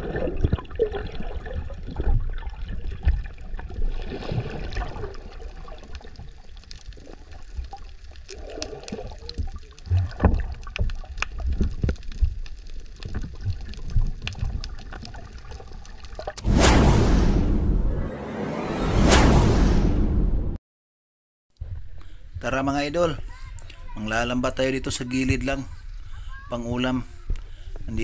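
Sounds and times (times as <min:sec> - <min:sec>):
underwater gurgling and bubbles: 0:00.0 - 0:16.4
low thumps: 0:16.4 - 0:20.6.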